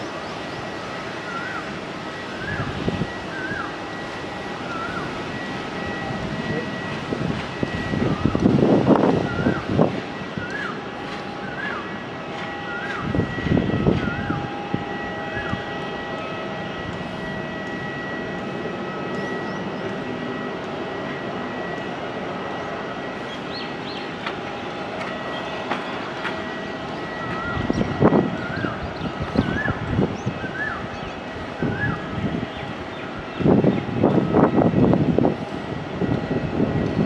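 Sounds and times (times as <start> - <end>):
jet engines whining: 0.0 - 37.0
bird calling: 1.1 - 3.8, 4.6 - 5.2, 27.0 - 33.5.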